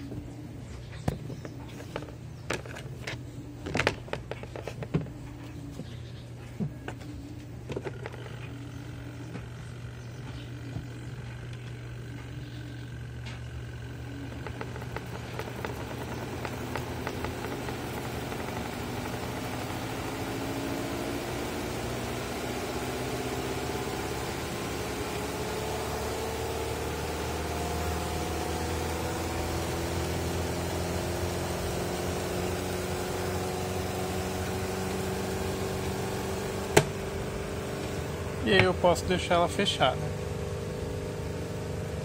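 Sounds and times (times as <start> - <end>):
spin-dryer motor whine: 0.0 - 42.0
steady low hum: 0.0 - 42.0
quick ticking: 13.8 - 20.3.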